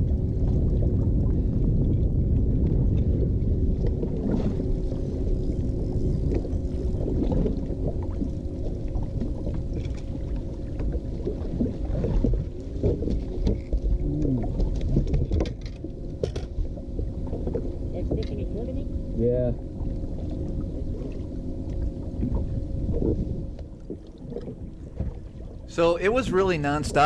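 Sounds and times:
water splashing on boat bow: 0:00.0 - 0:19.1
wind: 0:00.0 - 0:27.0
electric trolling motor humming: 0:02.2 - 0:15.0.

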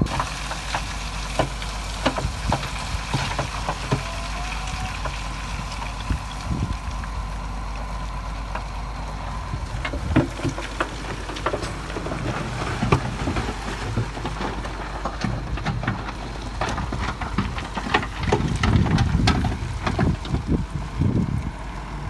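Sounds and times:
diesel engine running: 0:00.0 - 0:22.0
rock knocking and clattering: 0:00.1 - 0:06.7, 0:09.7 - 0:20.6.

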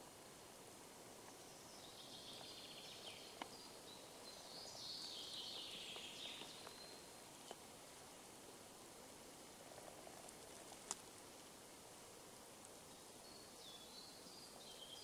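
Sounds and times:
faint ticks: 0:03.3 - 0:03.6, 0:09.7 - 0:11.6.

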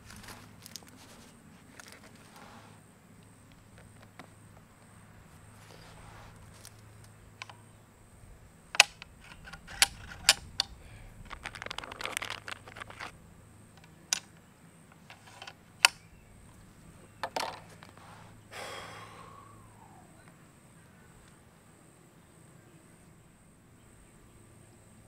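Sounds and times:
rustling: 0:00.0 - 0:07.6, 0:08.7 - 0:18.4
air rifle action clicking: 0:08.7 - 0:13.2, 0:13.8 - 0:16.2.

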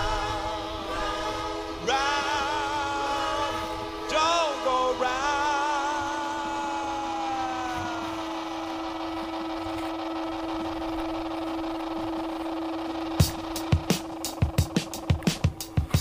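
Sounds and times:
higher tones: 0:00.0 - 0:16.0
long held music note: 0:00.0 - 0:16.0
drum hits: 0:13.2 - 0:16.0.

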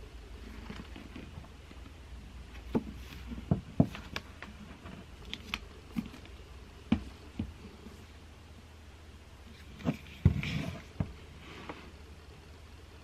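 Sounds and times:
low room hum: 0:00.0 - 0:13.0
books knocking and tapping: 0:02.6 - 0:07.8, 0:09.8 - 0:11.2.

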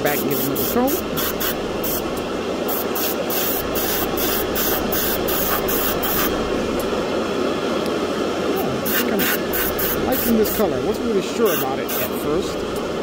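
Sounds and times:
airbrush spraying hiss: 0:00.1 - 0:06.4, 0:08.8 - 0:10.7, 0:11.4 - 0:12.3.

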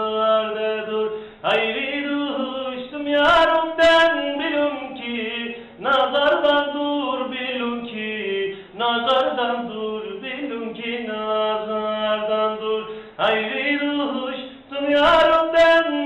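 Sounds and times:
man singing folk song: 0:00.0 - 0:16.0.

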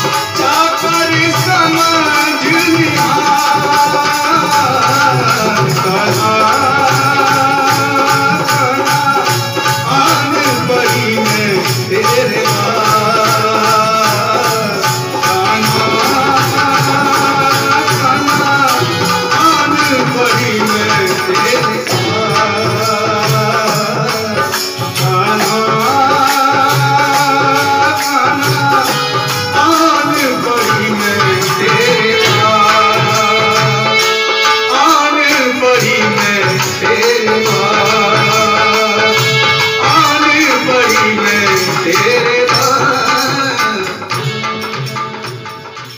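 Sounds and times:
barrel drum rhythm: 0:00.0 - 0:45.9
man singing devotional song: 0:00.0 - 0:45.9.

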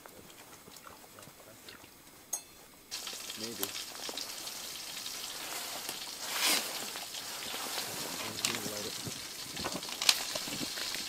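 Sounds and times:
food sizzling in a pot: 0:02.9 - 0:11.0.

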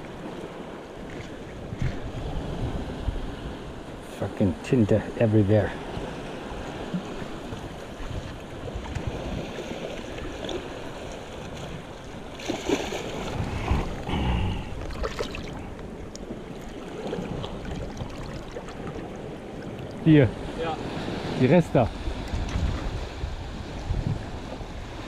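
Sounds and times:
wind on microphone: 0:01.0 - 0:04.0, 0:05.8 - 0:25.0
water lapping at rocks: 0:05.6 - 0:25.0
squid squelching and splashing: 0:12.4 - 0:13.7.

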